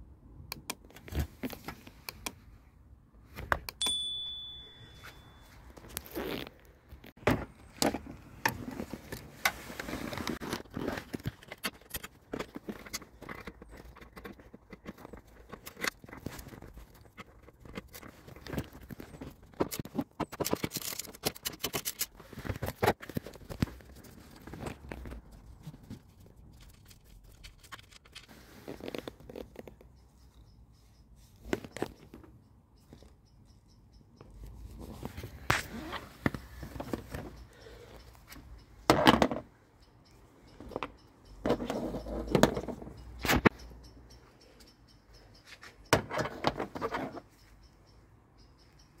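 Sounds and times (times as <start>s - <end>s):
hand tools clicking and scraping: 7.6s - 29.9s, 35.0s - 43.7s.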